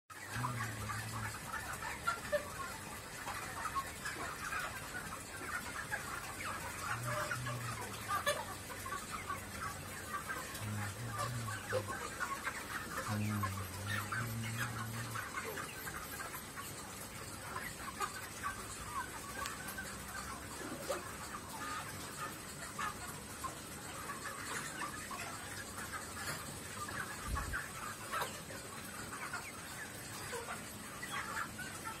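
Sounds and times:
chickens clucking and cheeping: 0.1s - 32.0s.

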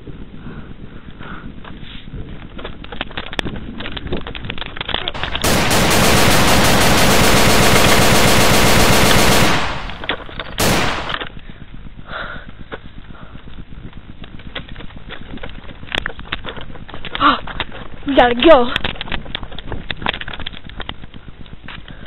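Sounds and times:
clicks and rustle: 2.3s - 5.7s, 14.2s - 21.9s
machine-gun bursts: 5.2s - 11.2s.

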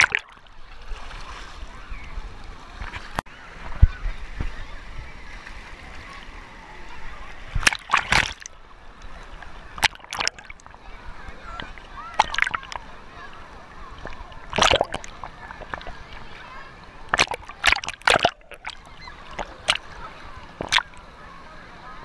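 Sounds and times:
water sloshing and splashing: 0.0s - 3.9s, 5.3s - 21.2s
faint voices of swimmers: 0.0s - 22.0s.

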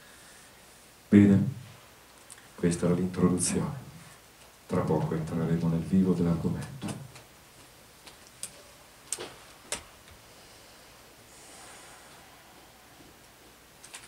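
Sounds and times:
microphone handling clicks and knocks: 6.6s - 7.3s.

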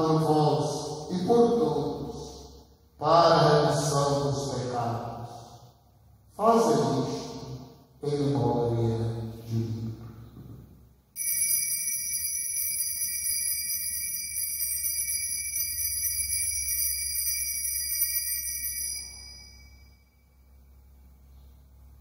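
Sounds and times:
altar bells jingling: 11.2s - 20.6s.

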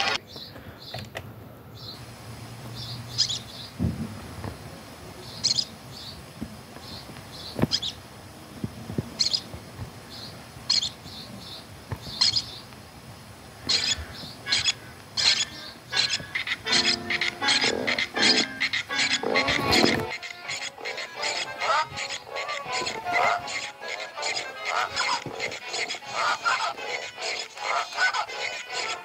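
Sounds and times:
high-pitched chirps: 16.0s - 26.0s.

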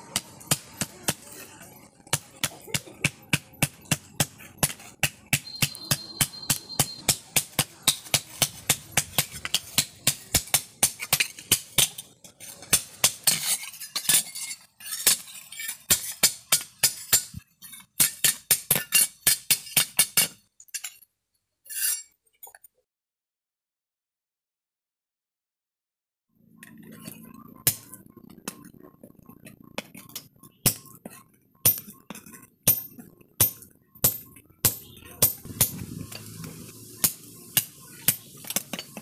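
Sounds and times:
hammer striking metal on anvil: 2.1s - 11.9s, 30.6s - 35.8s.

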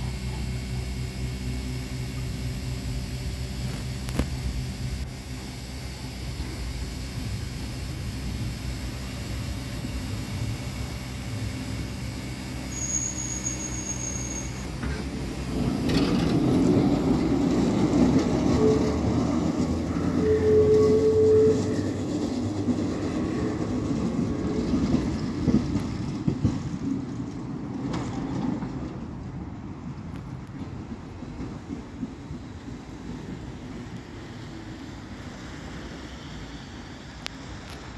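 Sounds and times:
tram rumbling along rails: 0.0s - 37.9s
wheels squealing: 12.2s - 26.7s.

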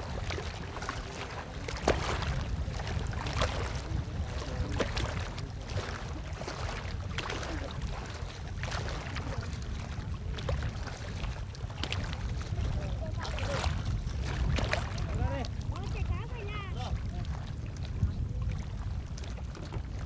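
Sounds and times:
water splashes: 0.0s - 20.0s
knocks of poles on canoe: 1.6s - 9.8s, 10.4s - 15.9s, 19.2s - 20.0s.

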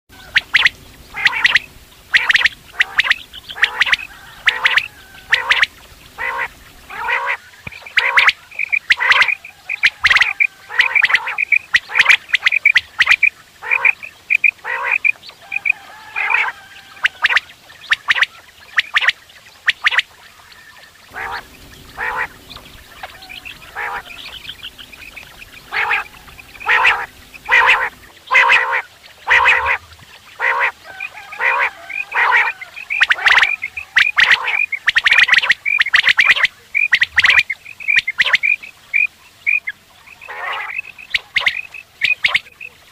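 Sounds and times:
quail calling: 0.1s - 42.9s.

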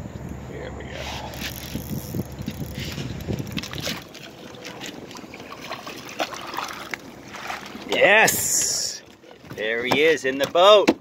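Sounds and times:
wind rumble on microphone: 0.0s - 7.3s
water splashes against boat: 2.5s - 11.0s.

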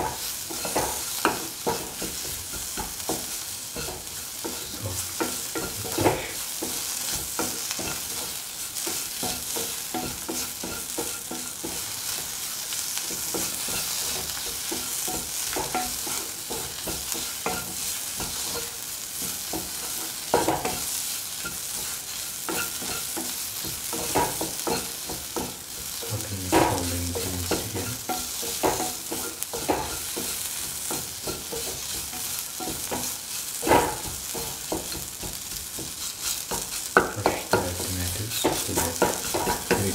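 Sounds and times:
spatula knocking against pan: 0.0s - 12.4s, 13.1s - 37.7s, 38.4s - 39.9s
spatula stirring and scraping: 0.0s - 39.9s
vegetables sizzling in hot oil: 0.0s - 39.9s.

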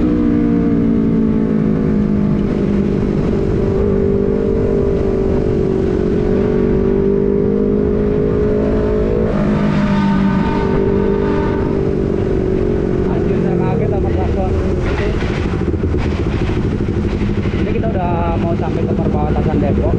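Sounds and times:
motorcycle engine running: 0.0s - 19.9s
wind rumble on microphone: 0.0s - 19.9s.

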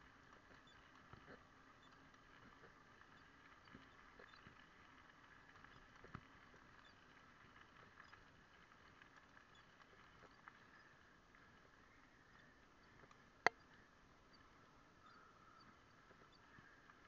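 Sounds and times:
camera ticking and rattling: 0.0s - 14.5s
faint hum: 0.0s - 17.0s.

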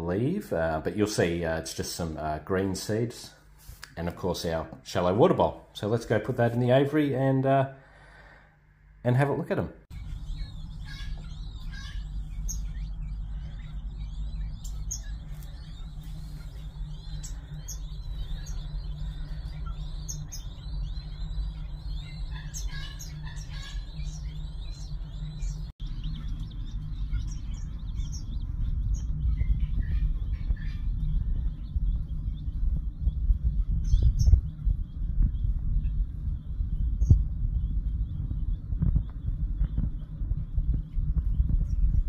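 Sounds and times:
quail chicks peeping: 0.0s - 7.6s, 9.1s - 42.0s
steady low rumble: 9.8s - 42.0s.

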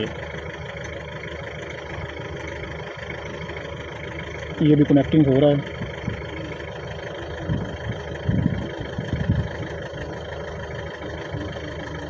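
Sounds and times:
wind buffeting microphone: 7.4s - 9.7s.

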